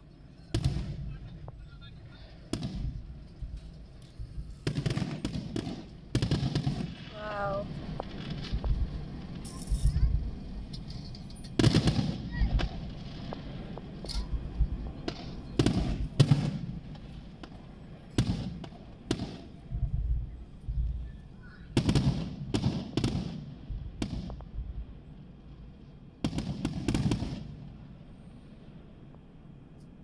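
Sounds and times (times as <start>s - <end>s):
firework shells bursting: 2.4s - 19.7s.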